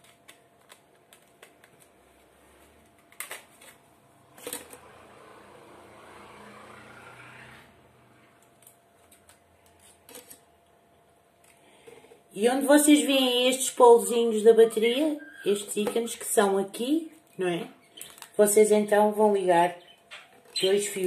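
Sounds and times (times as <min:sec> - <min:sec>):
small objects clicking and rustling: 0:00.0 - 0:02.0, 0:08.4 - 0:10.5, 0:17.9 - 0:18.4.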